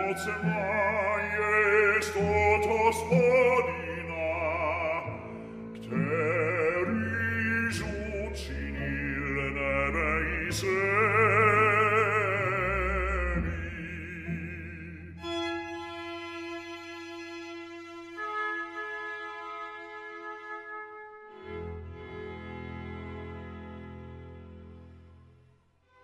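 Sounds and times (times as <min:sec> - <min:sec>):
operatic bass singing: 0:00.0 - 0:15.3
instrumental accompaniment: 0:00.0 - 0:25.2.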